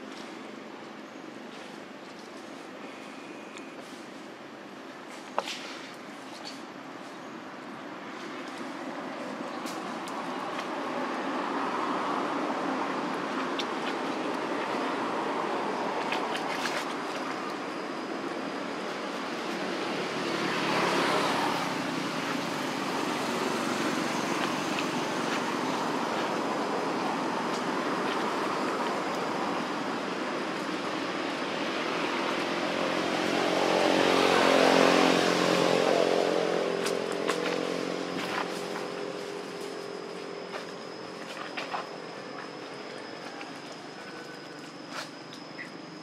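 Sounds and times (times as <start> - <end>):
background motor traffic: 0.0 - 46.0
vehicle engine passing: 19.6 - 29.8, 31.5 - 40.4.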